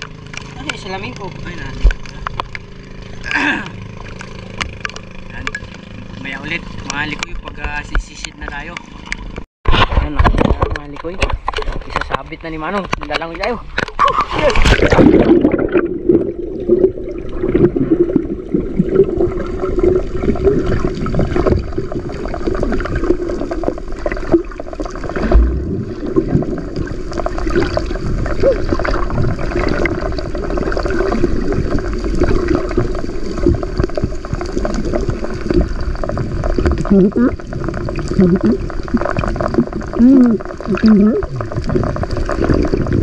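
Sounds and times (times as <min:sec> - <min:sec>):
small clicks and splashes: 0:00.0 - 0:16.2, 0:19.6 - 0:43.0
swimmer churning water: 0:00.0 - 0:43.0
low thump: 0:25.2 - 0:25.9.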